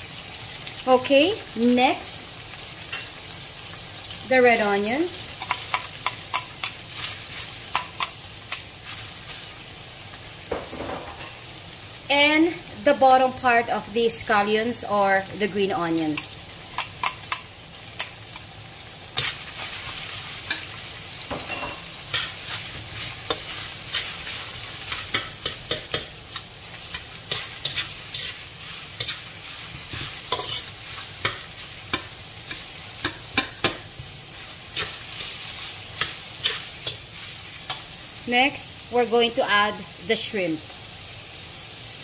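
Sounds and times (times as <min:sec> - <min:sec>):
steady sizzle: 0:00.0 - 0:42.0
metal turner scraping a wok: 0:22.0 - 0:33.7.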